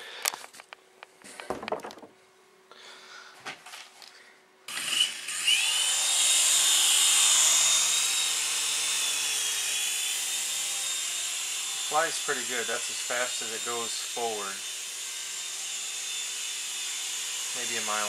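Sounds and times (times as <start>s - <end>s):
toy helicopter rotor whine: 4.7s - 18.0s.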